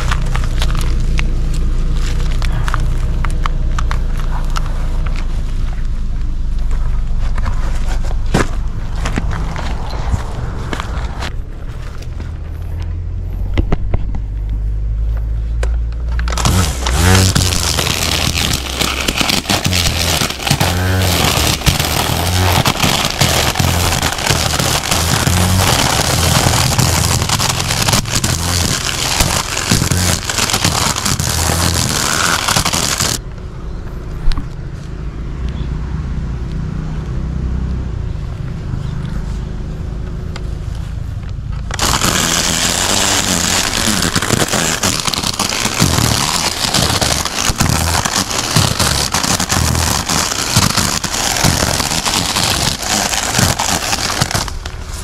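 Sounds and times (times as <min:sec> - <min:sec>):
string trimmer cutting grass: 0:00.0 - 0:05.3, 0:16.2 - 0:33.2, 0:41.7 - 0:55.0.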